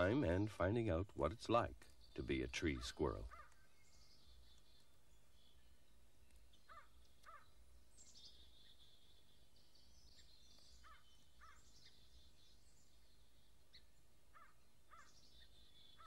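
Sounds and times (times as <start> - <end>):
birds twittering and trilling: 0.0 - 16.0
bird short paired calls: 1.8 - 4.9, 6.6 - 8.9, 10.1 - 13.0.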